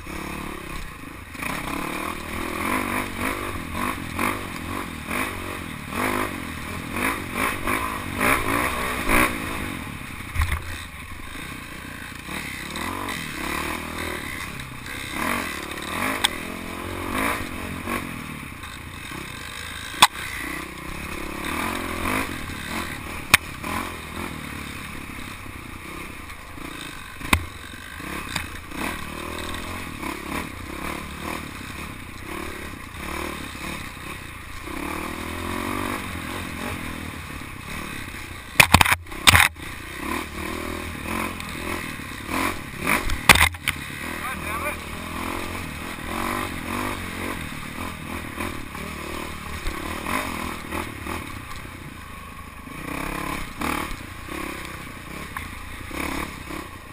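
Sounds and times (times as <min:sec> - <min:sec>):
dirt bike engine revving: 0:00.0 - 0:56.9
bike rattling over bumps: 0:10.1 - 0:23.6, 0:24.6 - 0:34.9, 0:37.8 - 0:40.1, 0:41.2 - 0:44.8
sharp hard knocks: 0:27.2 - 0:27.6, 0:38.6 - 0:39.6, 0:43.2 - 0:43.8.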